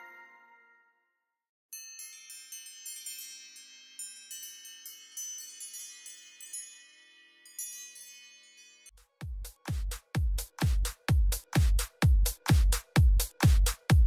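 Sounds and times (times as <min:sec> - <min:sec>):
wind chime ringtone: 0:00.0 - 0:00.8, 0:01.7 - 0:09.0
electronic dance music: 0:09.2 - 0:14.0.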